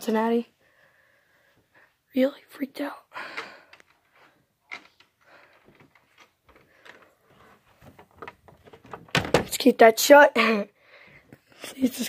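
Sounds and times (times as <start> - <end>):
faint rustling and handling: 3.4 - 9.3.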